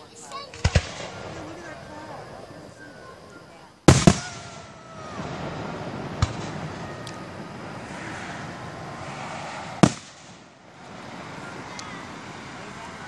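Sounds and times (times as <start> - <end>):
firework shells bursting: 3.9 - 12.8
steady rushing background noise: 5.0 - 13.0.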